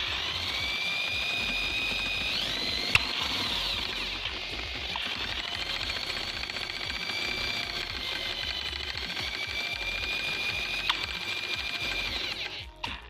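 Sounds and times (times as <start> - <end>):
electric drill whining: 0.0 - 13.0.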